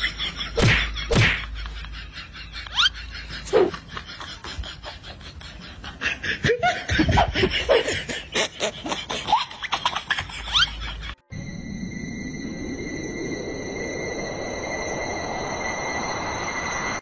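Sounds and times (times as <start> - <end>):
person laughing: 0.0 - 11.2.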